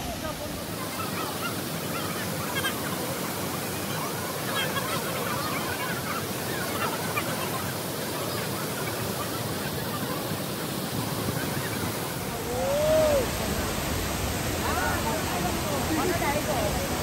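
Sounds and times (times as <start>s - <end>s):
waterfall rushing: 0.0s - 17.0s
rising and falling call: 12.2s - 13.4s.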